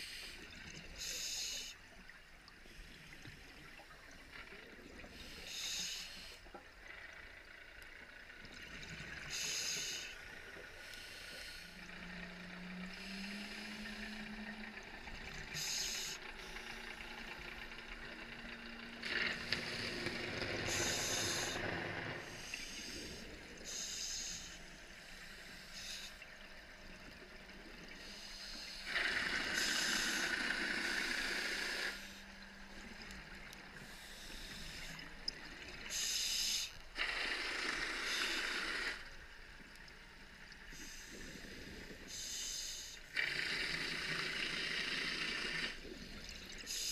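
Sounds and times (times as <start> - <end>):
hissing regulator inhales: 0.0 - 1.8, 5.2 - 6.5, 9.3 - 14.4, 15.5 - 17.6, 19.0 - 26.4, 28.0 - 32.9, 33.7 - 35.2, 35.9 - 39.2, 40.6 - 46.9.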